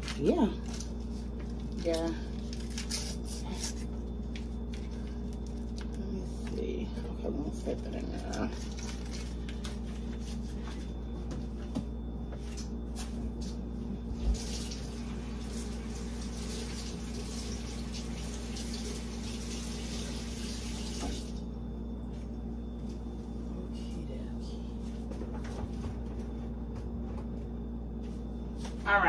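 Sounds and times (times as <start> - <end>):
steady low hum: 0.0 - 19.7, 21.0 - 29.0
kitchen faucet running: 14.3 - 21.4.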